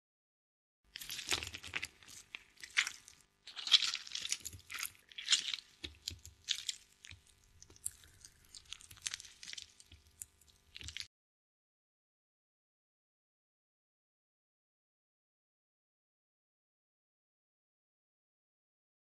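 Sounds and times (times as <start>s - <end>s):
raw chicken squelching: 1.0s - 11.1s.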